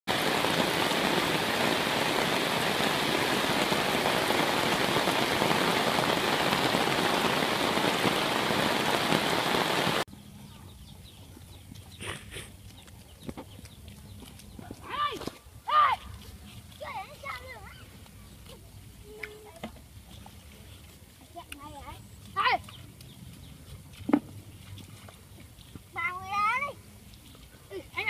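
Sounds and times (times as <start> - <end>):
heavy rain falling: 0.1 - 10.1
quiet outdoor background: 0.1 - 28.0.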